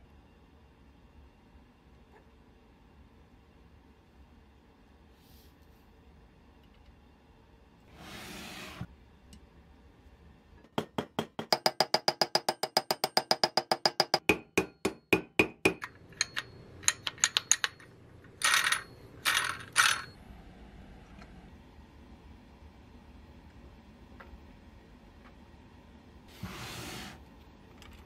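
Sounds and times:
hammer tapping metal axle: 10.8 - 18.9.

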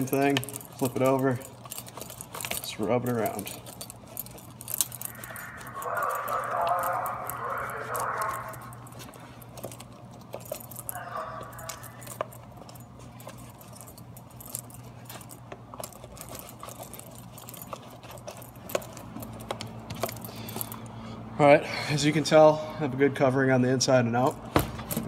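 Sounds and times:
low hum: 3.5 - 21.4.

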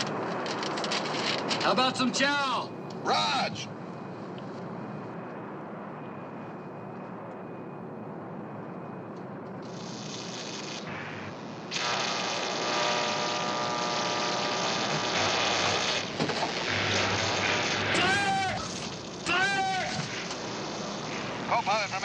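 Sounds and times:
jet cabin drone: 0.0 - 22.0
harsh hiss with buzzing tone: 9.6 - 22.0.

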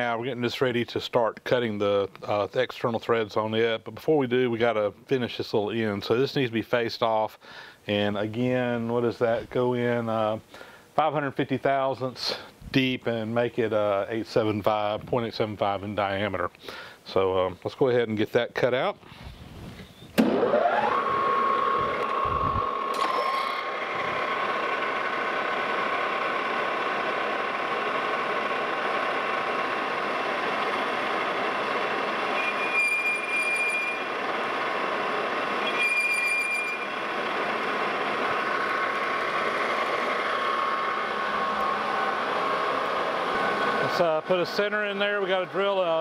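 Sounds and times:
metal lathe whine: 20.2 - 46.0.

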